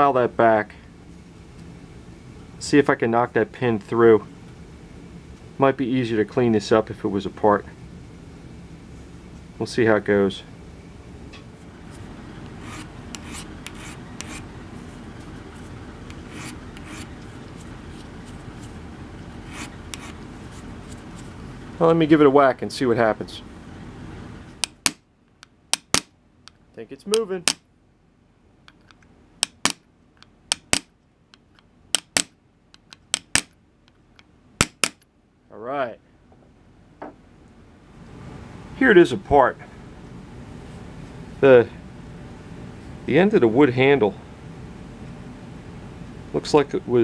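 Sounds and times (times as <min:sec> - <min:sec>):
file rasping on metal: 0:12.5 - 0:14.5, 0:16.1 - 0:17.1, 0:19.5 - 0:20.2
hammer striking metal punch: 0:34.6 - 0:35.0.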